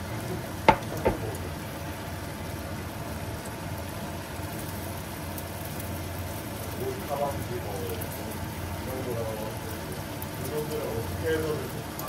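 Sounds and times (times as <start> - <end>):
omelette sizzling in a pan: 0.0 - 12.0
utensil clacking on pan: 0.7 - 1.5.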